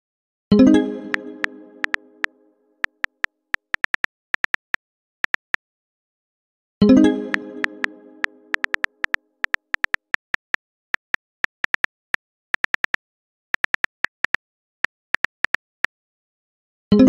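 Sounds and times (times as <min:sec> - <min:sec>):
phone keyboard clicks: 0:01.1 - 0:05.6, 0:07.3 - 0:11.9, 0:12.6 - 0:13.0, 0:13.6 - 0:14.4, 0:15.2 - 0:15.9.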